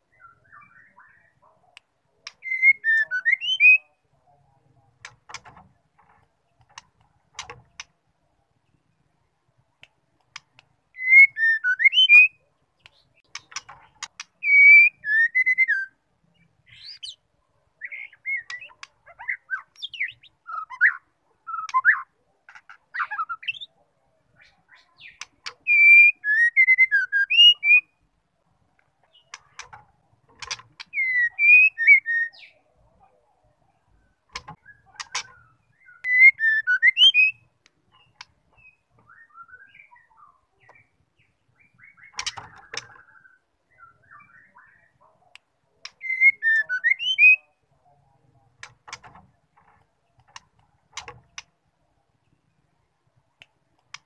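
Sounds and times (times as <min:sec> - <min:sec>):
bird whistling song: 0:00.1 - 0:01.4, 0:02.3 - 0:04.0, 0:10.9 - 0:13.7, 0:14.4 - 0:16.0, 0:16.7 - 0:17.2, 0:17.8 - 0:22.1, 0:22.9 - 0:23.7, 0:24.4 - 0:28.0, 0:30.8 - 0:32.6, 0:34.6 - 0:45.0, 0:45.8 - 0:47.6
sharp clicks: 0:05.0 - 0:08.0, 0:12.8 - 0:14.4, 0:29.3 - 0:30.9, 0:34.3 - 0:35.4, 0:48.6 - 0:51.5.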